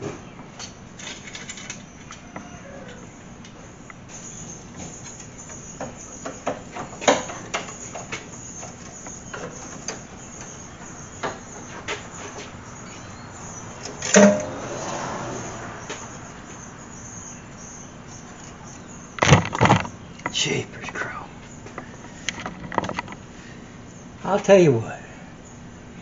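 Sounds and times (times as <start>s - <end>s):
metal clank: 13.9s - 14.9s.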